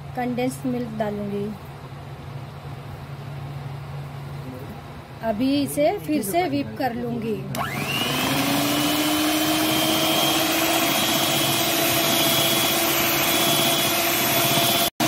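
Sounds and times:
electric hand mixer whining: 7.6s - 15.0s.

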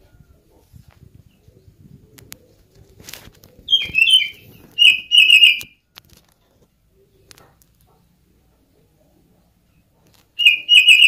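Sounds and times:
bird chirping: 3.6s - 5.9s, 6.9s - 11.0s.

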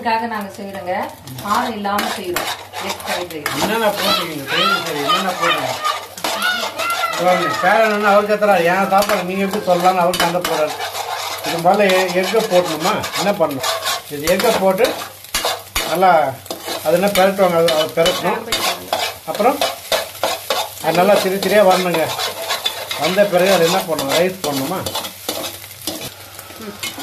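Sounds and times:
frying sizzle: 0.0s - 27.0s
spoon scraping egg in pan: 1.3s - 26.2s.

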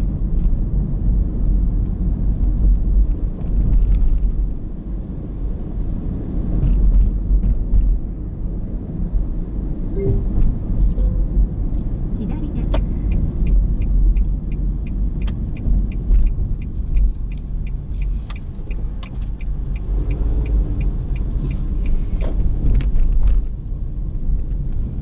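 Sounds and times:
engine and tyre rumble: 0.0s - 25.0s
turn signal ticking: 11.7s - 23.4s.

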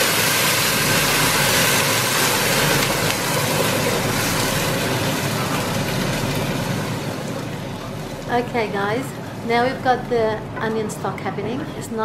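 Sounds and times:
water pouring splash: 0.0s - 8.3s
water sizzling in hot pan: 0.0s - 9.9s.

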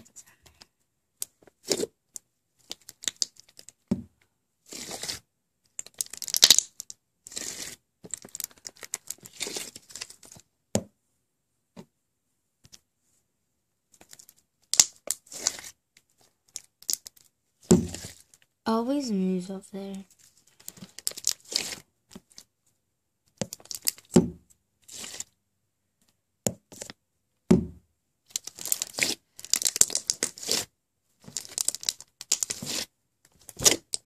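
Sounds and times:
sticky slime squelching: 1.5s - 2.0s, 2.6s - 3.8s, 4.6s - 10.4s, 14.0s - 22.5s, 23.2s - 25.3s, 28.3s - 34.0s.

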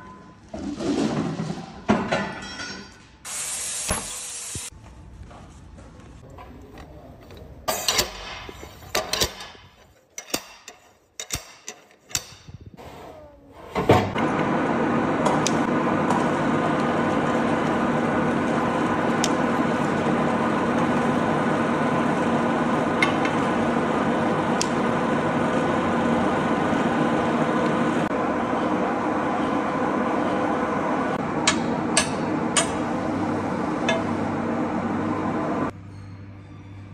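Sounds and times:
metal tools clicking and scraping: 6.8s - 12.6s
loud steady machine hum: 14.2s - 35.8s.

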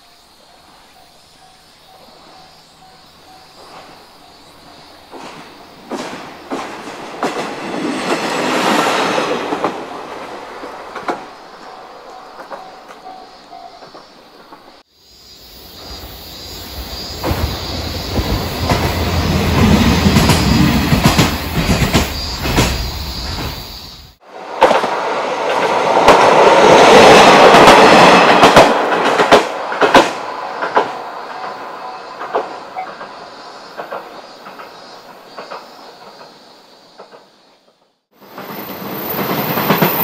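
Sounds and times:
wheels clacking over rail joints: 2.3s - 14.8s, 17.1s - 23.6s, 24.5s - 36.4s.

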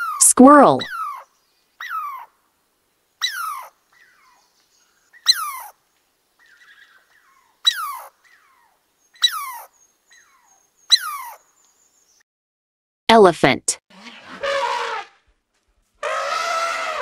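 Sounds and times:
squirrel squeaky cries: 0.0s - 2.3s, 3.2s - 4.4s, 5.2s - 5.8s, 6.4s - 11.4s.

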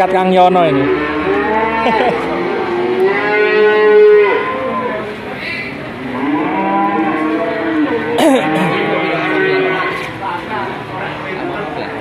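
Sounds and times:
cattle mooing: 0.5s - 5.1s, 6.0s - 10.0s.

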